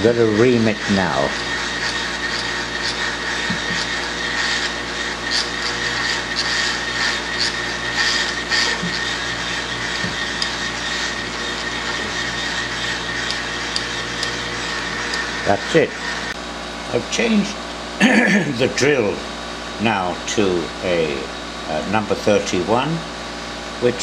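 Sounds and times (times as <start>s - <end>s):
reamer scraping metal: 0.0s - 16.4s
milling machine motor running: 0.0s - 22.1s.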